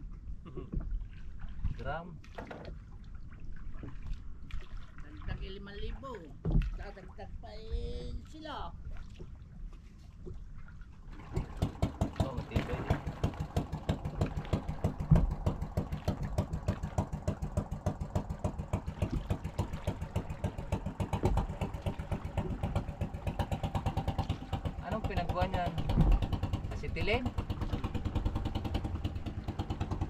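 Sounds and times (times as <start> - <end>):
boat engine puttering: 11.0 - 30.0
engine knock: 11.2 - 30.0.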